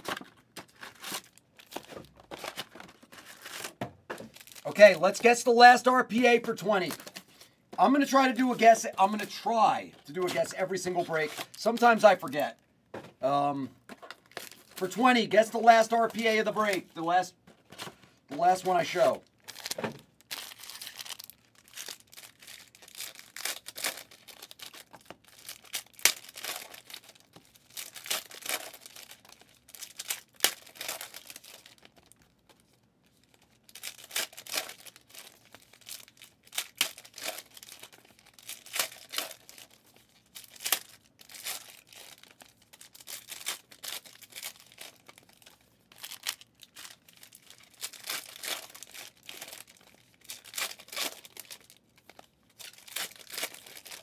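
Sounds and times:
foil wrappers ripping and crinkling: 0.0s - 9.4s, 14.1s - 16.9s, 18.4s - 54.0s.

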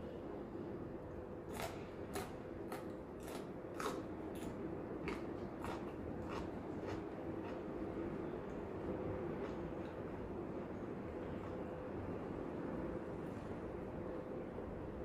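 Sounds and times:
crunchy chewing of raw bean: 1.4s - 10.1s.

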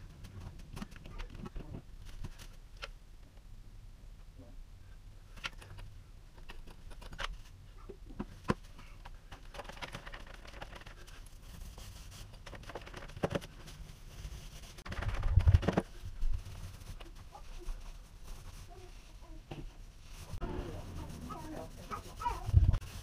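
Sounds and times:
plastic sheet rustling: 9.4s - 23.0s.

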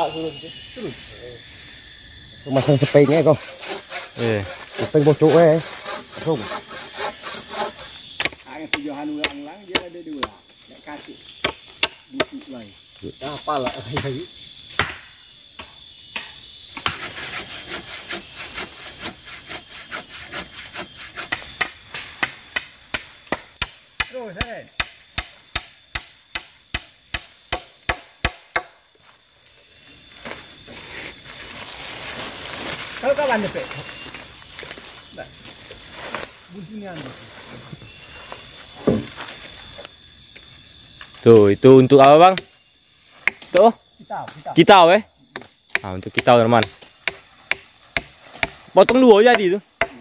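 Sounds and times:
forest insects droning: 0.0s - 50.0s
hammer knocking on wood: 8.2s - 10.4s.

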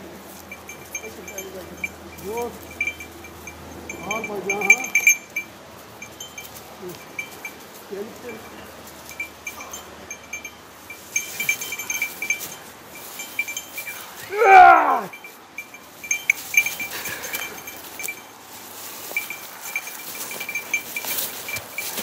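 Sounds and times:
small metal bell tinkling: 0.2s - 22.0s
loud cry falling in pitch: 14.2s - 15.2s.

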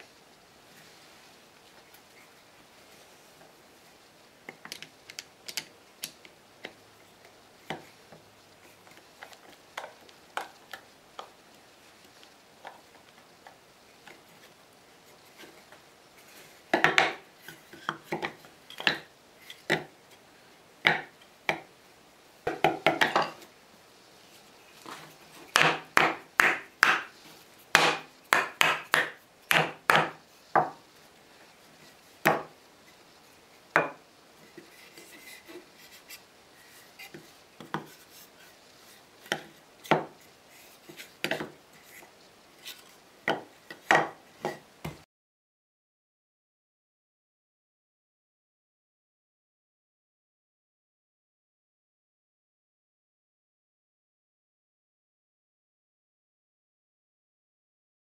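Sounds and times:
wooden boards knocking on workbench: 22.5s - 23.4s, 25.6s - 27.1s, 27.8s - 30.8s, 43.3s - 45.0s.

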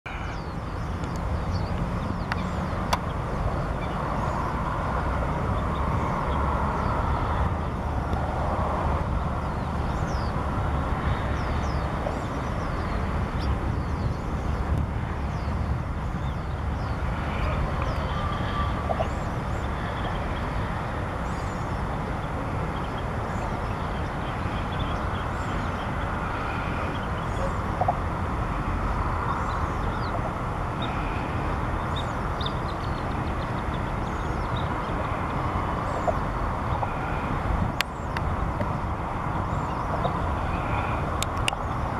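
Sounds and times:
high chirps of small birds: 9.4s - 10.4s, 30.8s - 38.4s.

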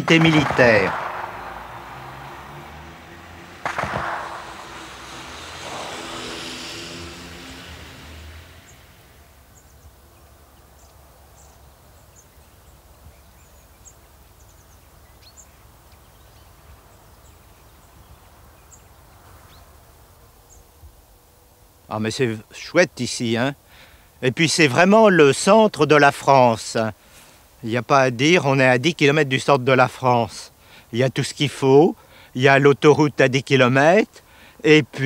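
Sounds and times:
steady low tones: 0.0s - 10.1s
vehicle whooshing past: 0.6s - 10.6s.

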